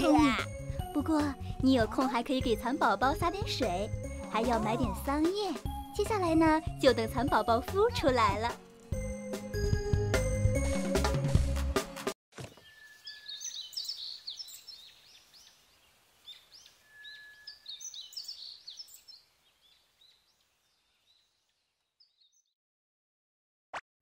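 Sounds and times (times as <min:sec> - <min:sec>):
small birds chirping: 0:12.4 - 0:22.6.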